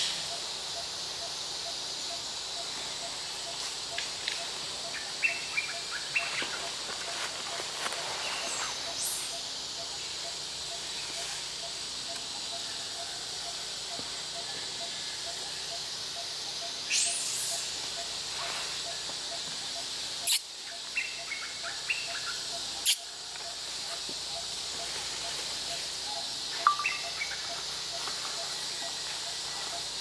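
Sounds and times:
pulsing insect call: 0:00.0 - 0:30.0
bird chirps: 0:16.6 - 0:17.7, 0:26.5 - 0:27.6
high insect buzzing: 0:20.2 - 0:20.5.

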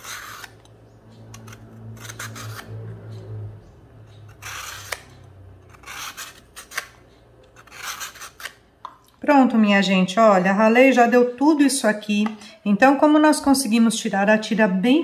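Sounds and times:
peeler scraping coconut: 0:00.0 - 0:08.7.

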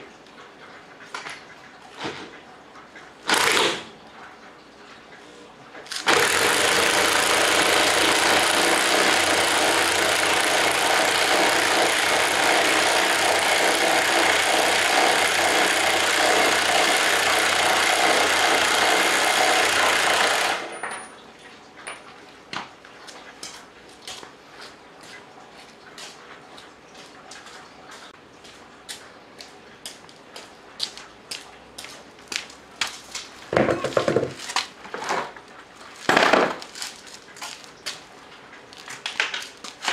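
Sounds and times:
electric impact wrench running: 0:03.3 - 0:03.8, 0:05.9 - 0:20.7.

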